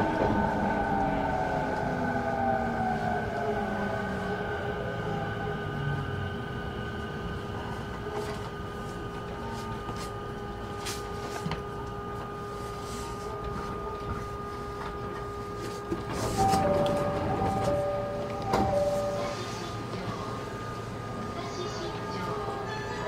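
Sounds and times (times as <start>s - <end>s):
train cabin rumble: 6.7s - 23.0s
two-note alternating bell: 16.4s - 19.4s.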